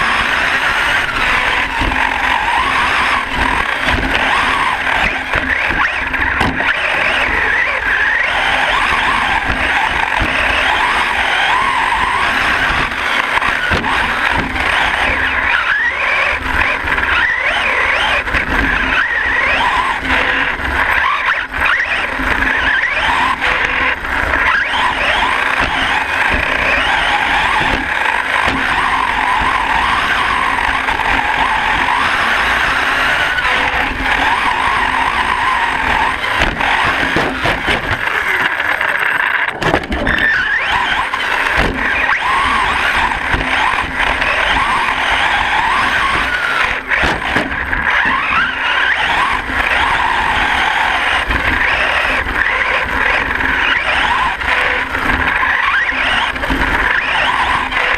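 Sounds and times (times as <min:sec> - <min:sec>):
electric motor whining: 0:00.0 - 0:57.9
tyres rumbling over dirt: 0:00.0 - 0:57.9
sharp knocks: 0:05.0 - 0:06.7, 0:36.4 - 0:38.1, 0:39.5 - 0:40.2, 0:41.5 - 0:41.9, 0:47.0 - 0:47.6.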